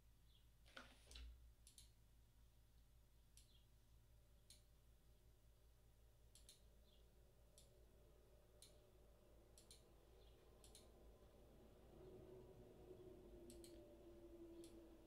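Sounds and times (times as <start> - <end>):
low steady hum: 0.0 - 15.0
computer mouse clicks: 0.8 - 2.0, 6.3 - 6.7, 8.6 - 8.8, 9.5 - 10.9, 13.5 - 13.8.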